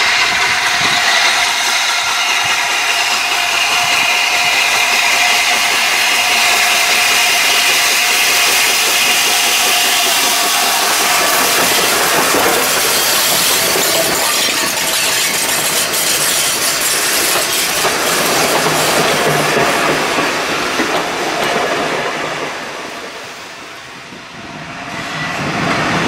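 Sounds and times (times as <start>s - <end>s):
coaches rolling on rails: 0.0s - 26.0s
steam locomotive passing: 0.0s - 26.0s.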